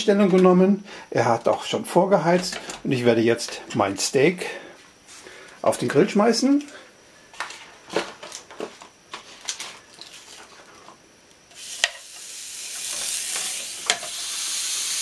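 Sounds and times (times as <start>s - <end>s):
steak sizzling on grill: 11.6s - 15.0s.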